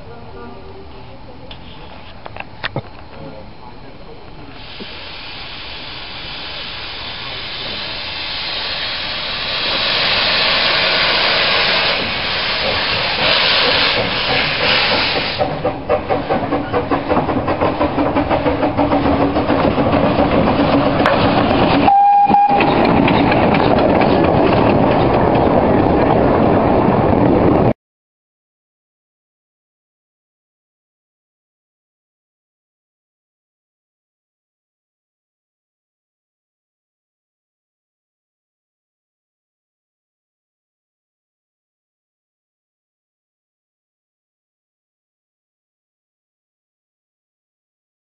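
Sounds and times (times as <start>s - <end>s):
steam locomotive blowing off steam: 4.5s - 24.7s
locomotive exhaust chuffs: 4.6s - 26.1s
carriages clattering: 15.4s - 27.6s.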